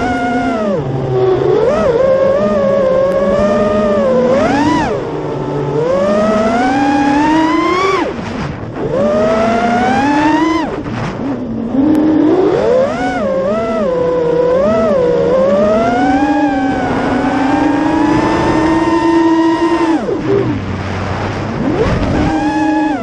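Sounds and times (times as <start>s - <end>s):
quadcopter motors whining: 0.0s - 23.0s.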